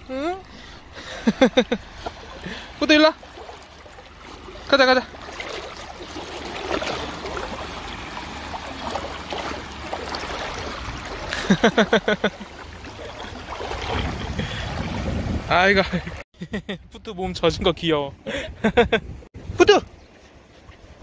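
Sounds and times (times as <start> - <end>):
water sloshing around swimming dog: 0.0 - 15.3.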